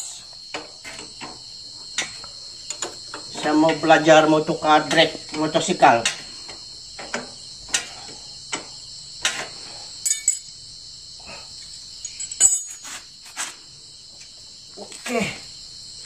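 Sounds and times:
crickets chirring: 0.0s - 16.0s
metal knocks: 4.8s - 9.4s
spanners clinking on metal: 10.0s - 10.6s, 12.0s - 13.0s.

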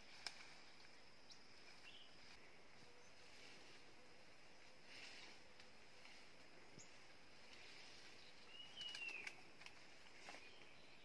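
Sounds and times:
footsteps snapping through undergrowth: 0.0s - 1.0s, 4.9s - 10.8s.

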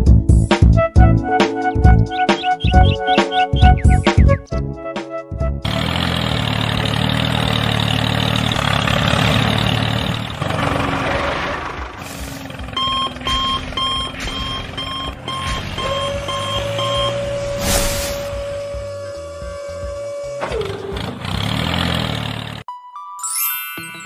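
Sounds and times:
truck engine running: 1.9s - 4.4s, 5.6s - 22.6s
reversing alarm beeping: 12.7s - 20.7s.

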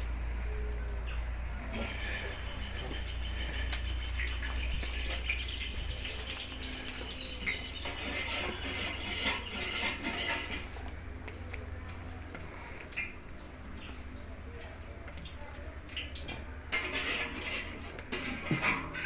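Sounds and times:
lard sizzling with crackling pops: 2.4s - 13.4s, 15.0s - 19.0s.

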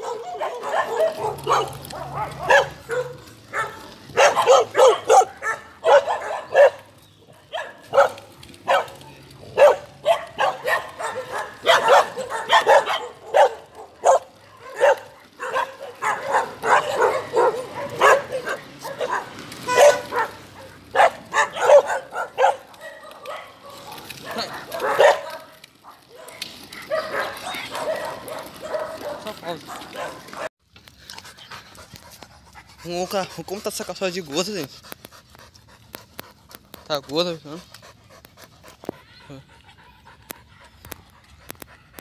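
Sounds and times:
dog barking and yelping: 0.0s - 30.5s.

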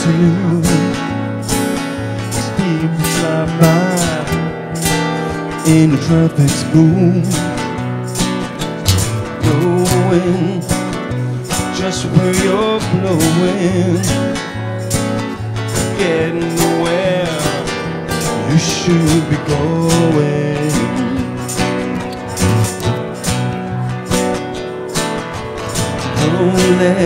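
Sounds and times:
man singing: 0.0s - 1.1s, 2.3s - 7.6s, 8.9s - 14.5s, 15.8s - 21.6s, 26.1s - 27.0s
acoustic guitars strummed: 0.0s - 27.0s.

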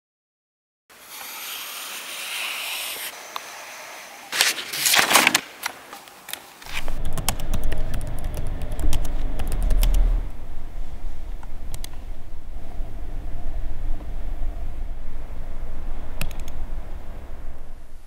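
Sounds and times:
pen scratching on paper: 1.0s - 3.1s
low steady hum: 6.6s - 18.0s
computer mouse clicking: 6.8s - 10.0s, 11.7s - 12.0s, 16.2s - 16.6s
laptop keys clicking: 7.0s - 10.0s.

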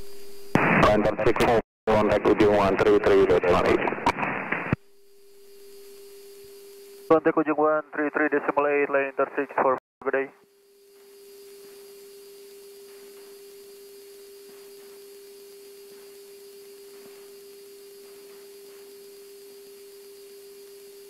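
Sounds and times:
steady electrical hum: 4.8s - 7.2s, 10.5s - 21.0s.

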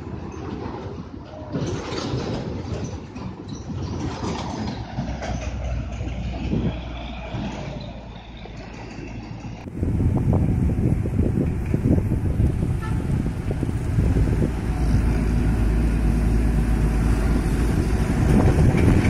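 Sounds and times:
diesel trucks driving: 0.0s - 19.0s
tyre and traffic rumble: 0.0s - 19.0s
deep steady engine drone: 5.6s - 19.0s.

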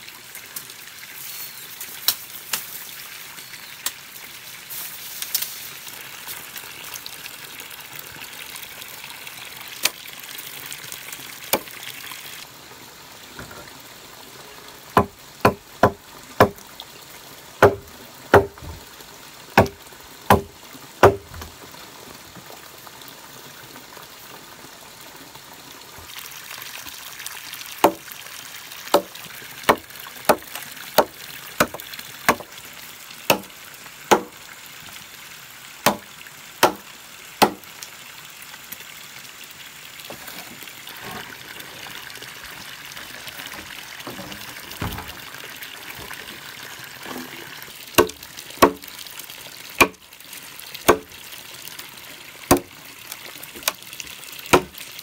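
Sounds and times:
steady hiss: 1.1s - 6.4s.

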